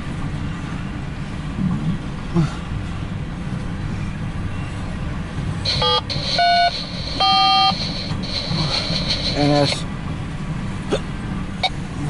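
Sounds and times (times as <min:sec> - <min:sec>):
rail cars rumbling: 0:00.0 - 0:12.0
short pitched tones: 0:05.7 - 0:09.7.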